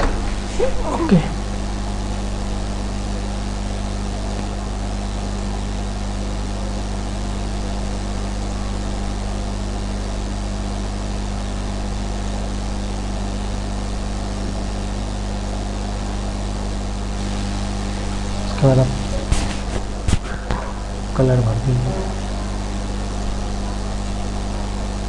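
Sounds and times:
low electrical hum: 0:00.0 - 0:25.0
constant hiss: 0:17.2 - 0:25.0.

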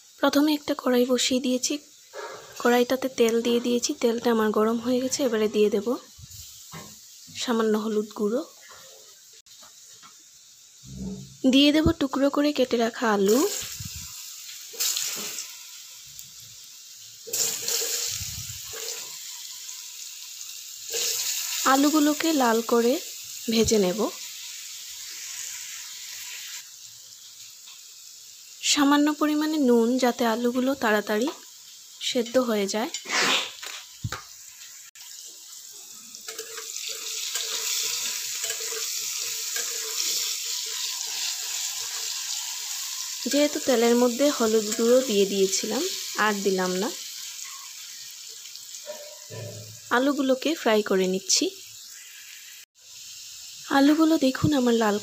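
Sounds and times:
potatoes sizzling in hot oil: 0:00.0 - 0:55.0
metal spatula clicking on pan: 0:36.3 - 0:40.0.

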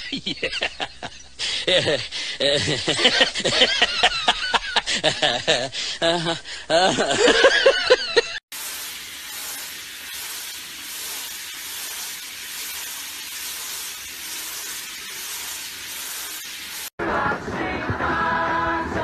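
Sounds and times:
water spraying from shower head: 0:08.5 - 0:17.0.

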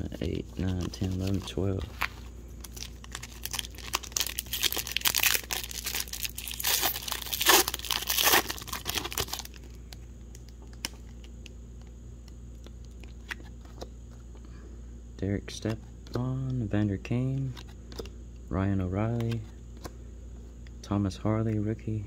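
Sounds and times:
foil wrapper crinkling and tearing: 0:00.6 - 0:09.7.

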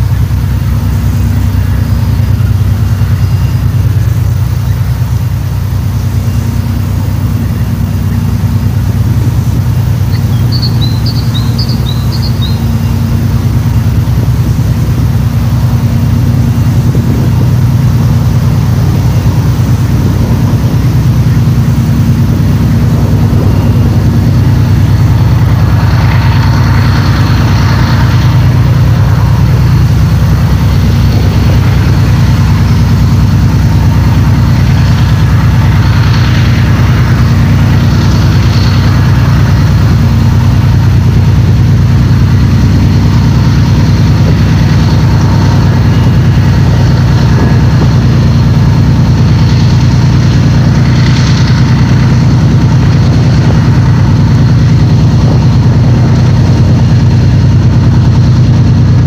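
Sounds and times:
diesel locomotive engine drone: 0:00.0 - 0:59.0
bird chirping: 0:10.0 - 0:13.0.

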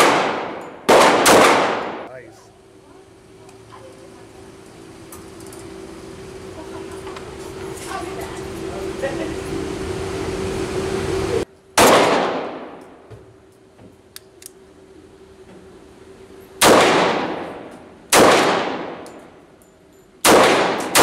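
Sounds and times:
pistol shots ringing indoors: 0:00.0 - 0:02.1, 0:11.8 - 0:13.0, 0:16.6 - 0:19.4, 0:20.2 - 0:21.0
steady mechanical hum: 0:00.0 - 0:21.0.

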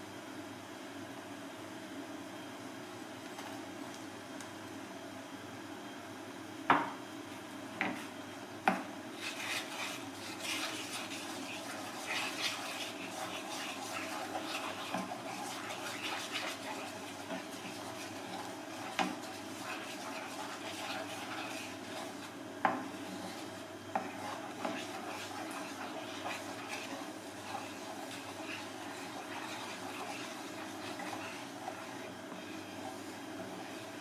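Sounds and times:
sauce simmering in a frying pan: 0:09.2 - 0:34.0
wooden spatula stirring and scraping: 0:09.2 - 0:34.0.

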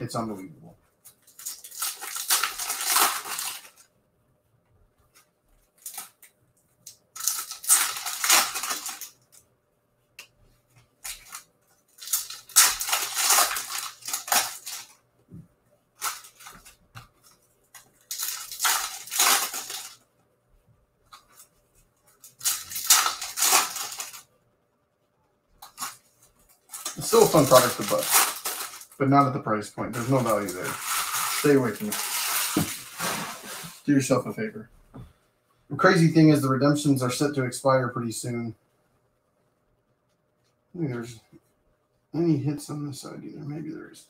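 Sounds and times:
foil wrappers crinkling: 0:01.2 - 0:03.9, 0:07.1 - 0:09.4, 0:11.0 - 0:15.0, 0:16.0 - 0:20.0, 0:21.2 - 0:24.3, 0:25.6 - 0:29.3, 0:29.9 - 0:33.8.

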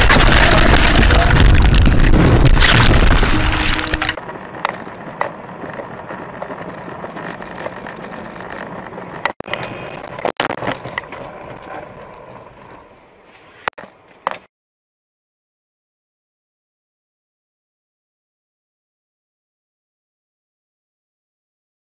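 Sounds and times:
vehicle noise: 0:00.0 - 0:14.5.

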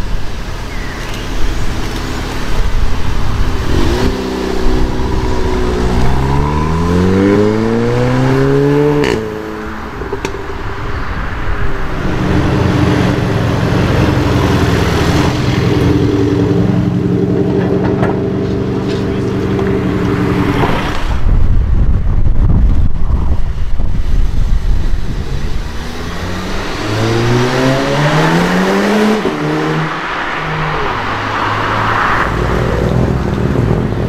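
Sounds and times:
car engine accelerating hard: 0:00.0 - 0:21.5, 0:24.2 - 0:34.0
car engine running steadily: 0:00.0 - 0:26.7
exhaust crack: 0:00.1 - 0:25.8.

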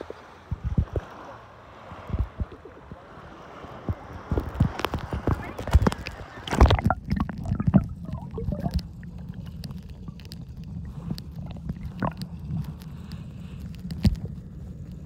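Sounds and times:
underwater rumble: 0:00.0 - 0:15.0
faint knocks and clicks: 0:04.3 - 0:15.0.

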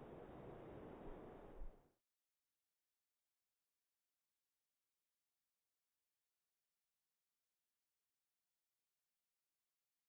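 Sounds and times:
faint outdoor background hiss: 0:00.0 - 0:02.0.

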